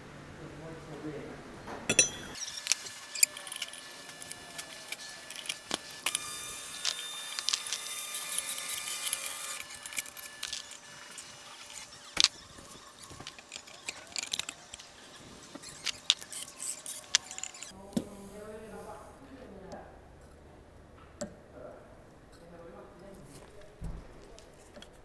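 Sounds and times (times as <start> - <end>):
metal clutch parts clinking: 11.7 - 17.7.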